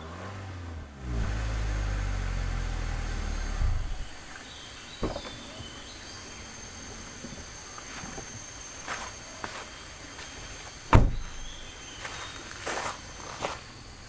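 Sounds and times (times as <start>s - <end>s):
car engine rumbling: 0.0s - 14.0s
insects buzzing: 0.9s - 14.0s
car door latch click: 10.9s - 11.2s.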